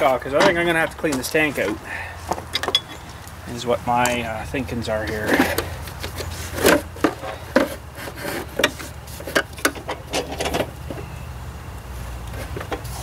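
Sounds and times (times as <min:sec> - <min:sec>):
tools knocking and scraping: 0:00.0 - 0:03.2, 0:05.0 - 0:11.1, 0:12.4 - 0:13.0
steady low hum: 0:00.0 - 0:13.0.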